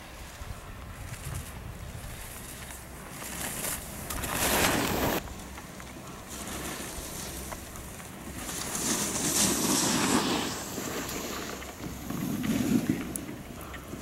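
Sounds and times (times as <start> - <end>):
wind buffeting microphone: 0.0 - 5.4.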